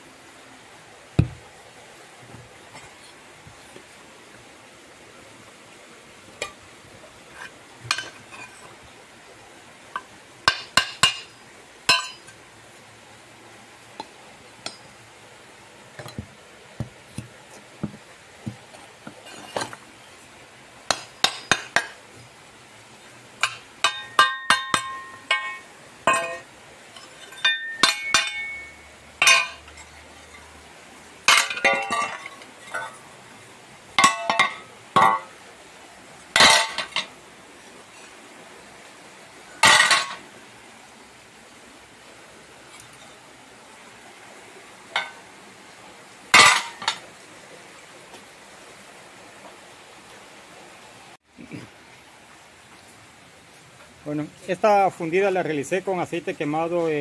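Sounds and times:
metal tool knocking cast metal: 1.2 - 1.4, 10.0 - 11.3, 11.9 - 12.3, 23.4 - 26.4, 27.4 - 29.6.

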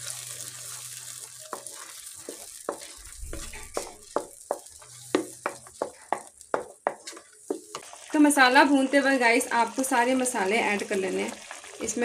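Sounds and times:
puree sizzling in hot oil: 0.0 - 12.0
spatula scraping a pan: 0.6 - 7.8.

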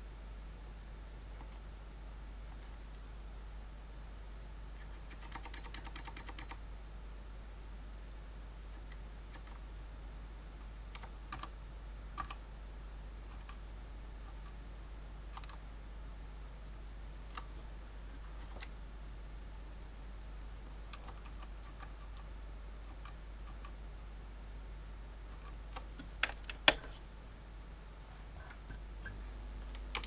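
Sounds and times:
keyboard keystrokes: 5.1 - 6.6, 15.4 - 15.6.

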